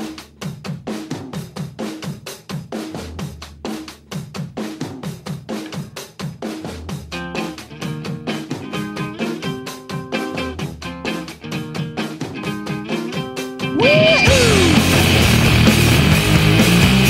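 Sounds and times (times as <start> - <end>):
drum kit beat: 0.0 - 17.0
repeating bass line: 13.8 - 17.0.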